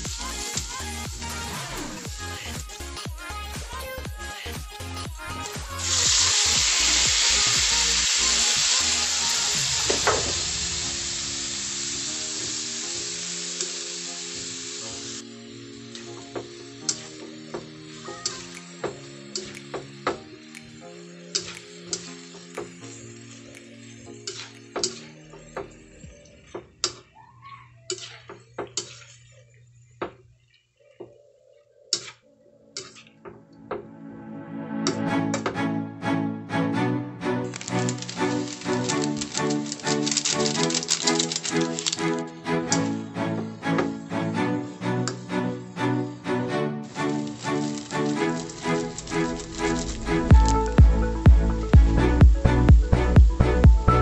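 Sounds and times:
meat sizzling in a wok: 0:00.0 - 0:03.7, 0:04.5 - 0:25.6, 0:37.5 - 0:42.9, 0:46.8 - 0:51.0
spatula scraping a steel wok: 0:24.2 - 0:25.1, 0:27.9 - 0:29.4.

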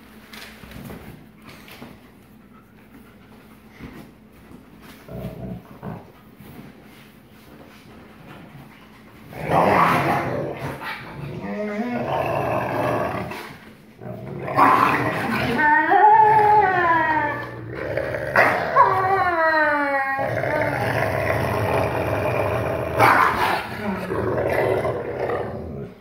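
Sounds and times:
dogs growling: 0:05.0 - 0:06.2, 0:09.2 - 0:19.2, 0:20.1 - 0:26.0.

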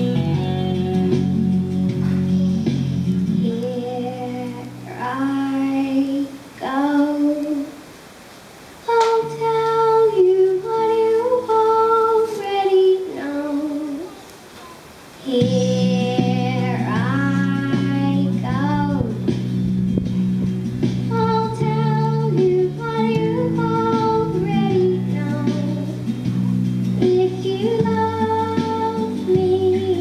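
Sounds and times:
backing music: 0:00.0 - 0:06.2, 0:15.3 - 0:30.0
girl singing into microphone: 0:00.0 - 0:07.9, 0:08.8 - 0:30.0.

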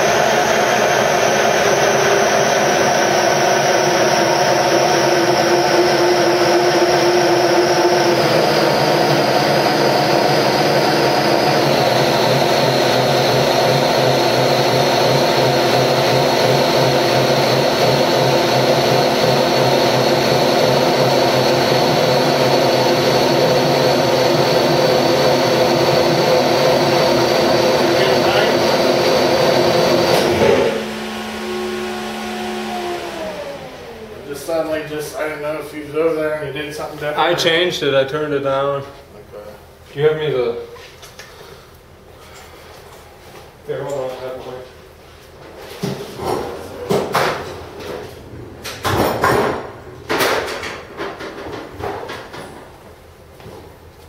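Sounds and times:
engine droning with high whine: 0:00.0 - 0:36.0.

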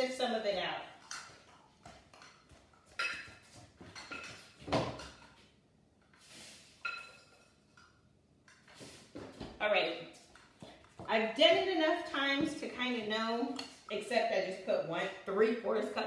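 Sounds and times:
measuring cup clinking glass bowl: 0:06.8 - 0:07.6.

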